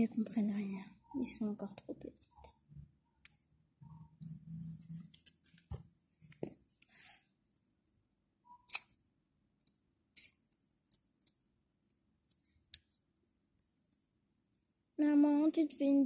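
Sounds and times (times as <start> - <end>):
plastic toys clicking: 9.6 - 11.4.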